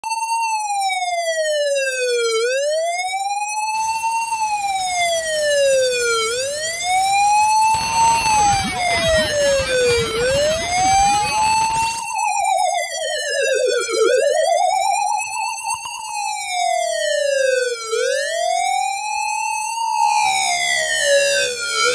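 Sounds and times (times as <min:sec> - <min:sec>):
ambulance siren wailing: 0:00.0 - 0:21.9
siren fast warbling yelp: 0:03.8 - 0:18.3.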